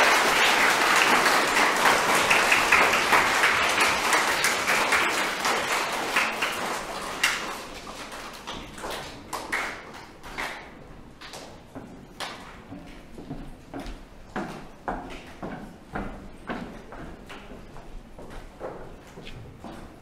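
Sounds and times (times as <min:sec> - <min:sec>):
audience applauding: 0:00.0 - 0:10.3
footsteps on stage floor: 0:06.8 - 0:20.0.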